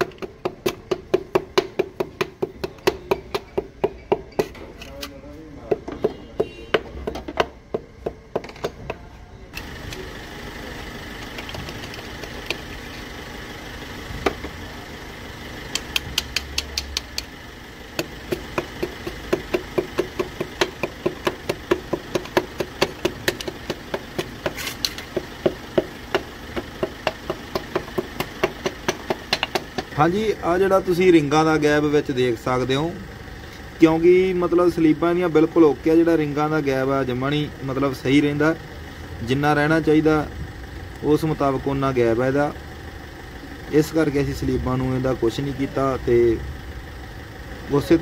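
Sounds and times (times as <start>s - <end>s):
rod knocking piston into cylinder: 18.0s - 29.9s.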